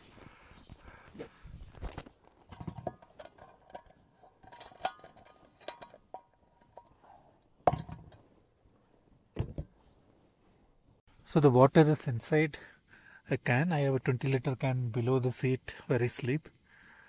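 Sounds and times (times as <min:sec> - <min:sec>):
metal pot clinking and knocking: 0:02.5 - 0:07.0, 0:07.7 - 0:08.2.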